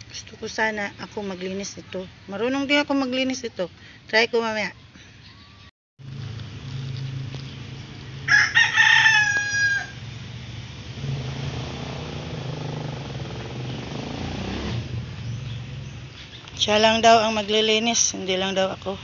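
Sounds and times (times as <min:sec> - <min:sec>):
rooster crowing: 0:08.2 - 0:10.1.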